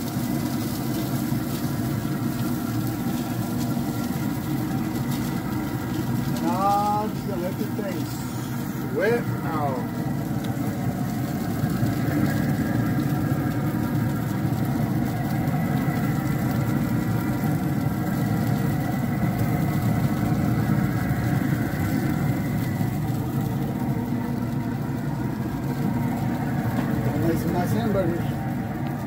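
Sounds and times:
pellet grill fan humming: 0:00.0 - 0:29.0.

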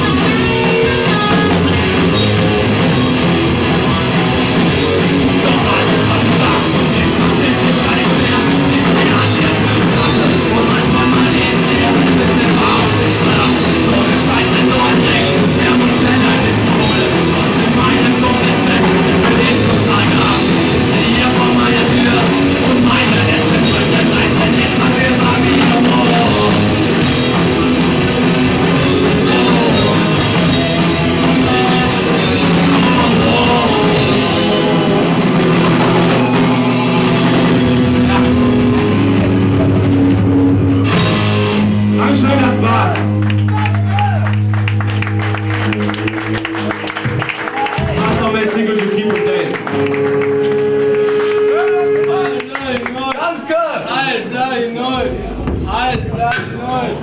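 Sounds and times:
electric guitars: 0:00.0 - 0:53.0
bass guitar: 0:00.0 - 0:53.2, 0:53.8 - 0:57.0
drum kit: 0:00.0 - 0:53.2, 0:54.8 - 0:57.0
person singing: 0:04.0 - 0:39.9.

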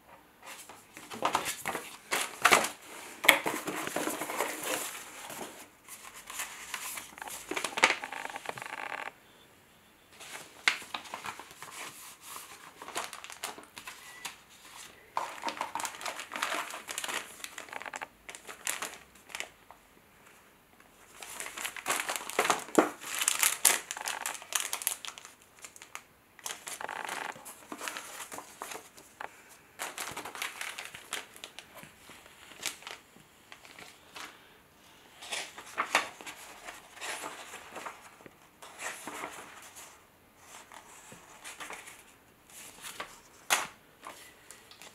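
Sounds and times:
paper and cardboard rustling: 0:00.4 - 0:09.1, 0:10.2 - 0:19.5, 0:21.0 - 0:34.4, 0:35.1 - 0:44.9
plastic bags crinkling: 0:01.0 - 0:09.1, 0:10.2 - 0:19.6, 0:21.1 - 0:34.3.

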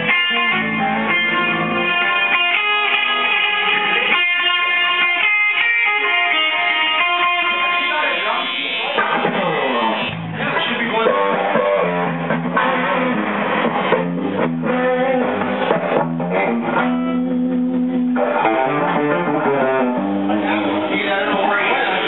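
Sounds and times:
electric guitars through amplifiers: 0:00.0 - 0:22.0.

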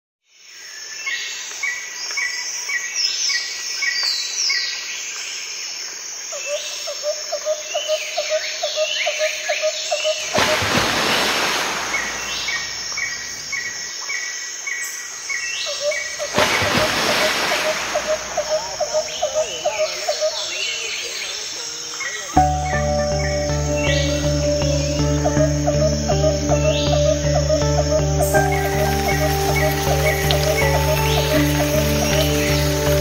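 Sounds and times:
birds chirping: 0:07.8 - 0:33.0
rushing noise burst: 0:10.2 - 0:13.5
low repeated bird call: 0:15.6 - 0:33.0.

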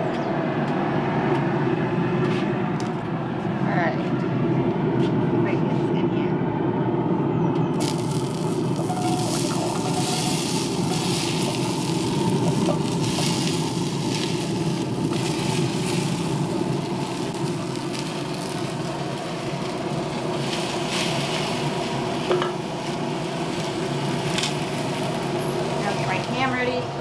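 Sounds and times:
low hum: 0:00.0 - 0:27.0
potatoes and onion sizzling: 0:07.8 - 0:26.8.

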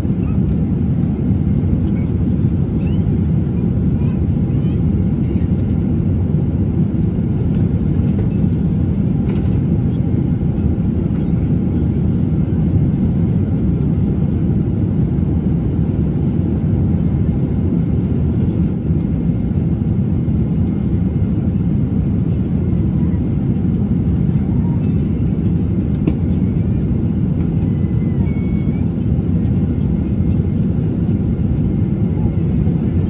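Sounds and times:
airliner cabin engine rush: 0:00.0 - 0:33.0.

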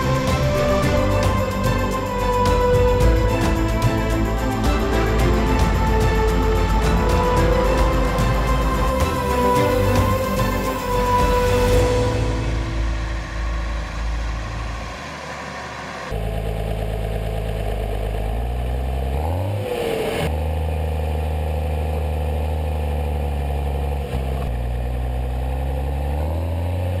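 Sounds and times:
music: 0:00.0 - 0:15.1
diesel tractor engine running: 0:00.0 - 0:19.4.

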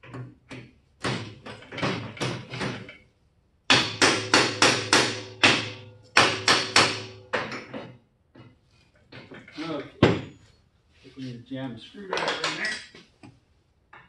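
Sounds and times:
hammer blows on steel: 0:03.7 - 0:07.4.

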